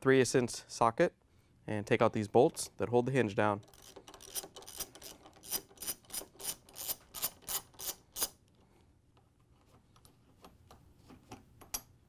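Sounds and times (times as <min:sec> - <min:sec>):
ratchet clicking: 0:03.6 - 0:08.4.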